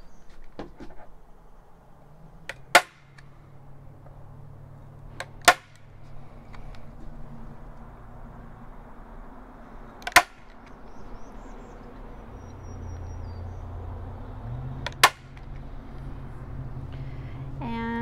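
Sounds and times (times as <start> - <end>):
stapler snapping: 14.8 - 15.5.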